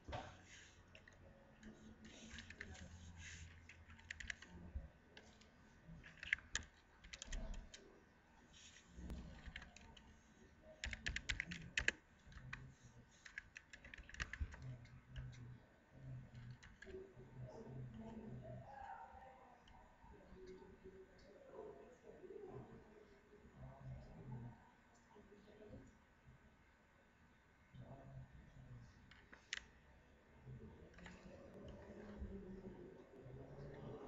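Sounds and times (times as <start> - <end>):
computer keyboard typing: 0.9 - 4.6, 6.0 - 7.9, 9.1 - 10.1, 10.8 - 15.4, 16.2 - 17.0, 29.1 - 29.7.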